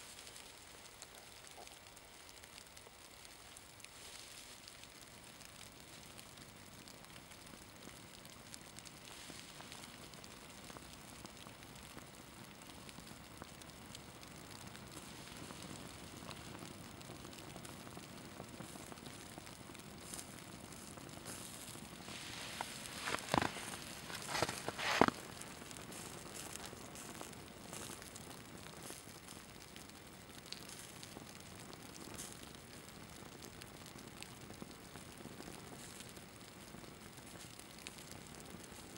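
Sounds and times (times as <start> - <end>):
burning fabric crackling: 0.0 - 38.9
flame snapping: 14.3 - 38.9.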